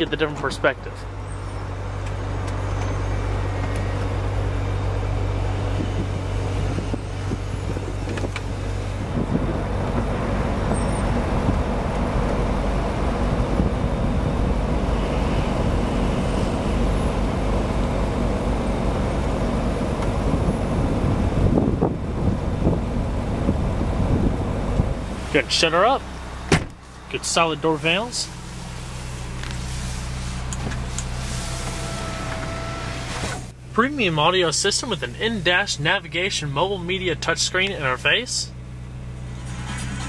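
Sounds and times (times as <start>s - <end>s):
car roof mechanism whirring: 26.4s - 27.0s, 28.4s - 33.6s.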